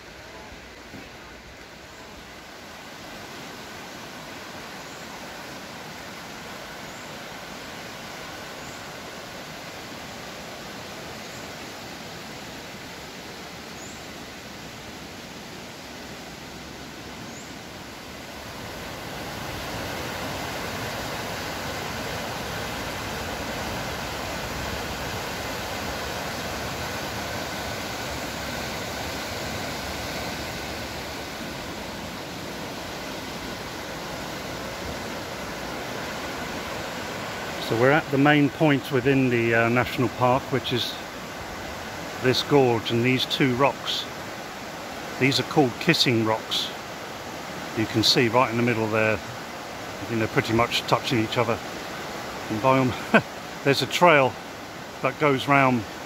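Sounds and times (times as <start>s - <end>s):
water rushing over rocks: 0.0s - 56.0s.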